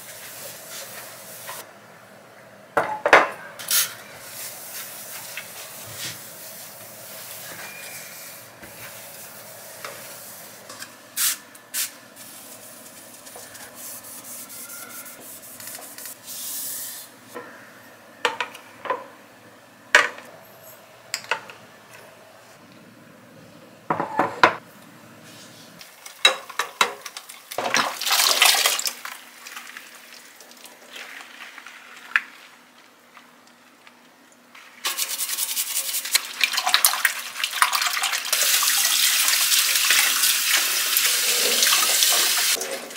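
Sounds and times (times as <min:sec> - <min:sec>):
water splashing in a sink: 0:27.0 - 0:32.3, 0:34.9 - 0:42.9.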